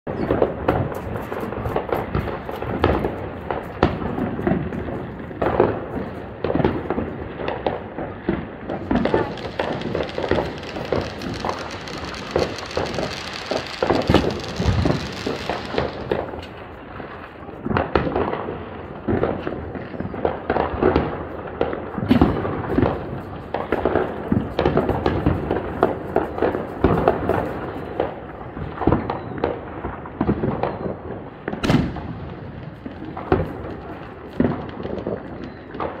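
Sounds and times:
fireworks popping and banging: 0:00.1 - 0:36.0
sharp firecracker cracks: 0:05.4 - 0:16.8, 0:22.0 - 0:28.3, 0:31.5 - 0:36.0.

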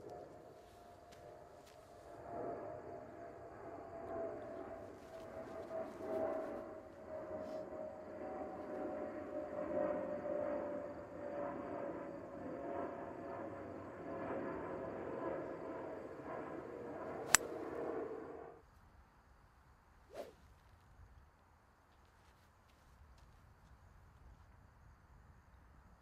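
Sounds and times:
droning hum: 0:00.0 - 0:18.7
golf club striking ball: 0:17.3 - 0:17.5.

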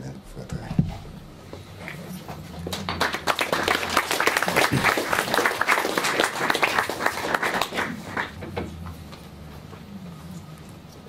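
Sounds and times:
audience applauding: 0:02.6 - 0:08.5.

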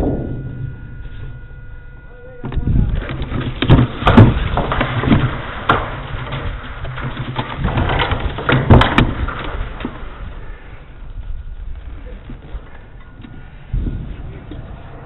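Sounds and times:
low rumble: 0:00.0 - 0:08.5, 0:09.1 - 0:15.0.

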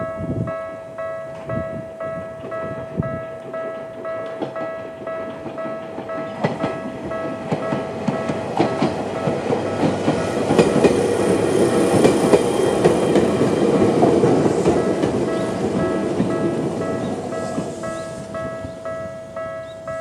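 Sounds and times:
level crossing warning bell: 0:00.0 - 0:20.0
train wheels clacking over rail joints: 0:03.4 - 0:18.0.

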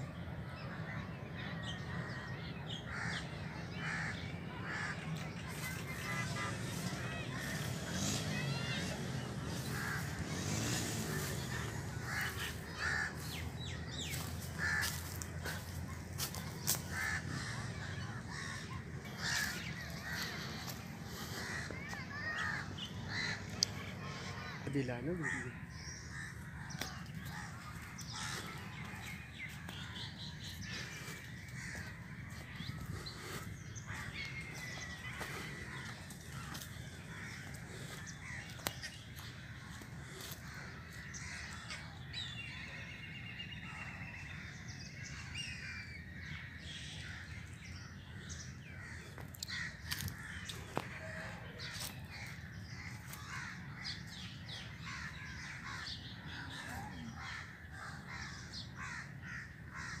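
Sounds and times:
crows cawing: 0:01.6 - 1:00.0
small birds chirping: 0:01.7 - 1:00.0.

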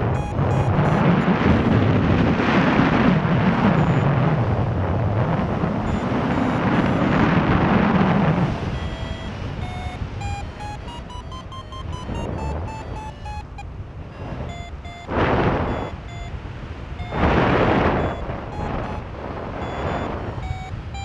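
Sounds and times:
variometer beeping rising in pitch: 0:00.0 - 0:02.0, 0:03.1 - 0:04.6, 0:05.6 - 0:21.0
wind buffeting microphone: 0:00.0 - 0:21.0.

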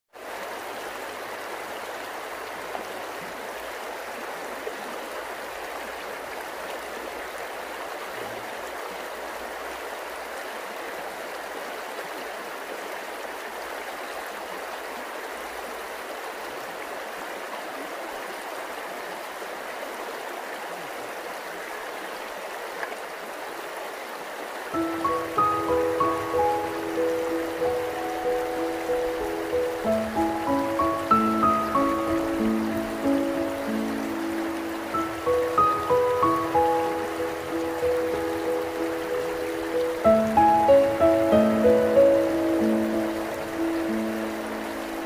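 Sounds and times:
stream flowing over stones: 0:00.1 - 0:45.0.

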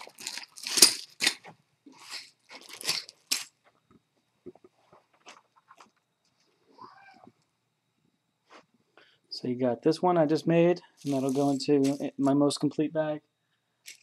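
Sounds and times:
plastic bags crinkling: 0:00.0 - 0:03.6, 0:11.0 - 0:12.1.

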